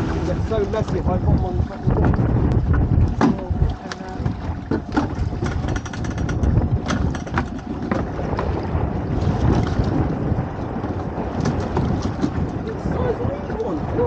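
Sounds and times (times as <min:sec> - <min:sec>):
wind buffeting microphone: 0:00.0 - 0:14.0
knocks and clicks: 0:02.1 - 0:08.1.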